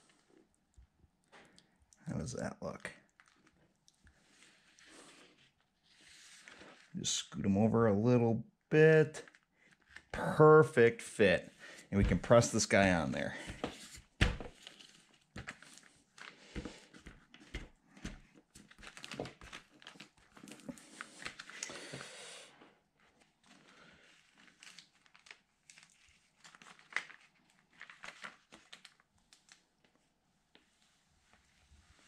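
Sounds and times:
plastic tape crinkling: 24.3 - 29.6.

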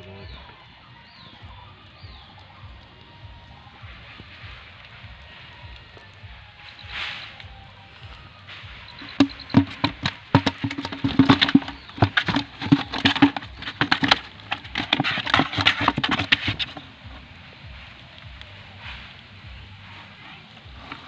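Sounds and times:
fish thrashing in plastic bucket: 8.7 - 16.9.

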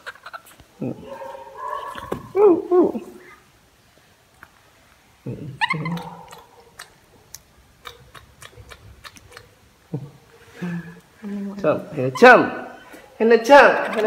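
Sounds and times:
monkey vocal sound: 5.2 - 11.1, 13.6 - 14.0
monkey eating with soft smacks: 5.6 - 10.1.

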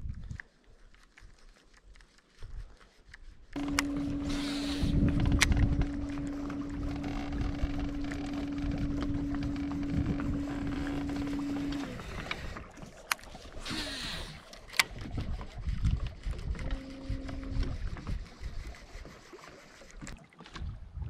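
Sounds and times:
electric motor whining: 3.6 - 12.7, 13.6 - 14.9, 16.1 - 18.4
sharp clicks: 3.6 - 15.1.

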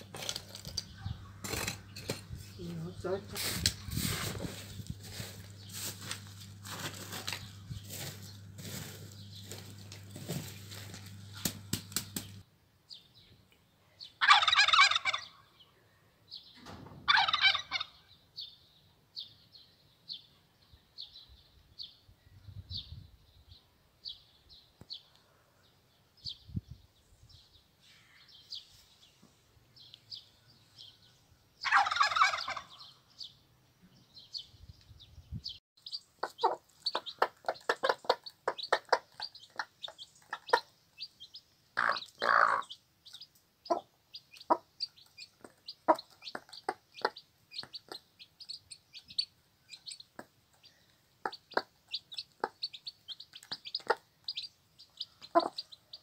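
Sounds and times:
hen clucking rapidly: 14.2 - 15.3, 31.6 - 32.8, 35.8 - 56.0
farmyard fowl calling: 14.2 - 15.4, 17.1 - 18.0, 31.6 - 32.9, 36.2 - 39.7, 41.8 - 42.8, 55.2 - 55.7
small bird chirping: 32.3 - 56.0.

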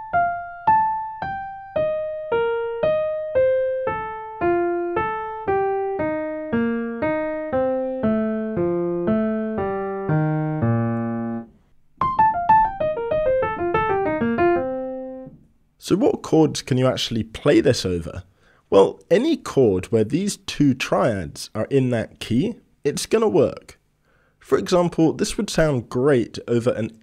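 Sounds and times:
solo jazz piano line: 0.0 - 15.4.

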